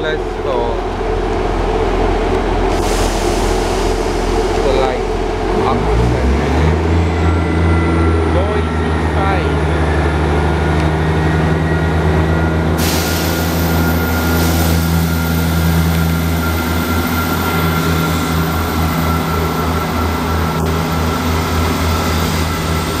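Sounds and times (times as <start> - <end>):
diesel train engine drone: 0.0 - 23.0
hiss: 2.7 - 4.3, 12.8 - 15.0.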